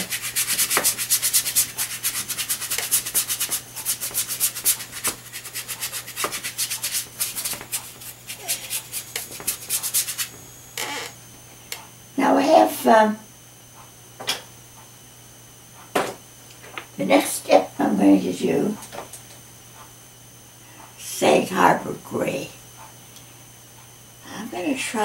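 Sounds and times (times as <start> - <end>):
paintbrush rubbing on paper: 0.0 - 10.4
faint steady hum: 0.0 - 25.0.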